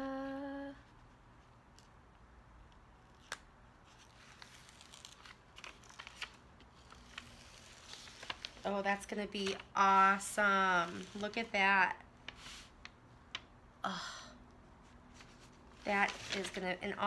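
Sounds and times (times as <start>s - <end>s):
person singing a held note: 0.0s - 0.9s
plastic film clicking and crinkling: 3.2s - 9.8s, 15.8s - 17.0s.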